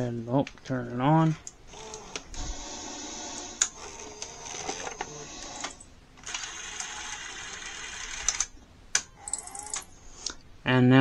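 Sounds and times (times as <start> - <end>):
motor and gears whirring: 1.7 - 8.5
sharp mechanism clicks: 8.2 - 9.9.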